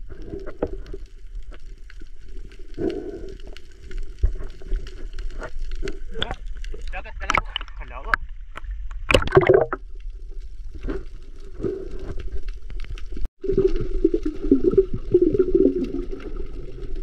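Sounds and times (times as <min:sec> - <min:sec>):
muffled water sloshing and bubbling: 0:00.0 - 0:17.0
water splash: 0:08.9 - 0:09.9.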